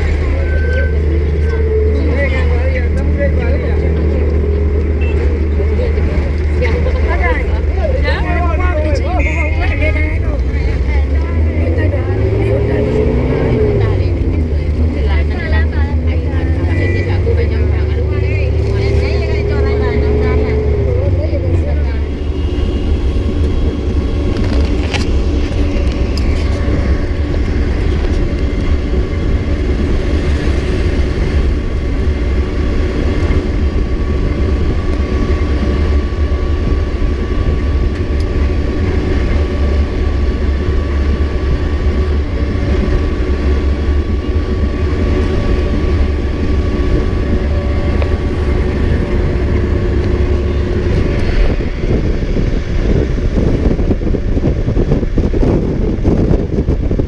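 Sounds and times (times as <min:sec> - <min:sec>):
engine drone: 0:00.0 - 0:57.0
road noise: 0:00.0 - 0:57.0.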